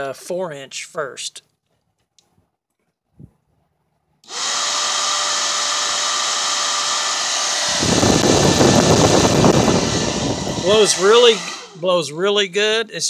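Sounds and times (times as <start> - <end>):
bilge blower whirring: 4.2 - 12.1
wind buffeting microphone: 7.7 - 11.2.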